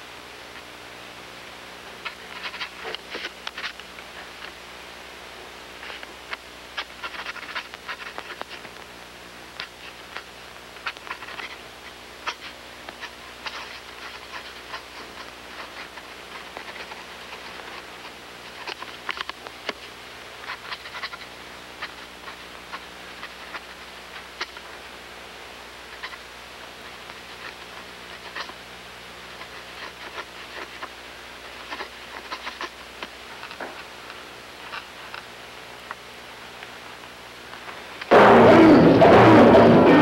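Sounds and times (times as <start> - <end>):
film soundtrack hiss and hum: 0.0 - 40.0
pen nib scratching on paper: 6.8 - 8.6, 12.2 - 19.4, 20.4 - 23.8, 27.2 - 28.6, 29.2 - 33.6.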